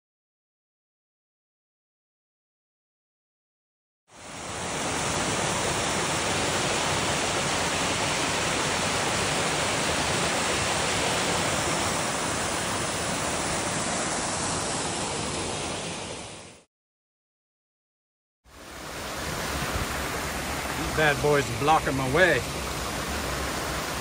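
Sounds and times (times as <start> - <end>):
small waterfall cascading: 4.1 - 16.7, 18.5 - 24.0.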